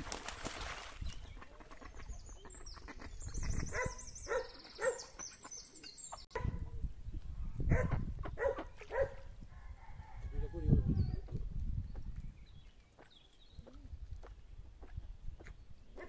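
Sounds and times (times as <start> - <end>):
small birds chirping: 1.0 - 9.2, 10.9 - 16.0
ducks quacking: 1.2 - 6.2.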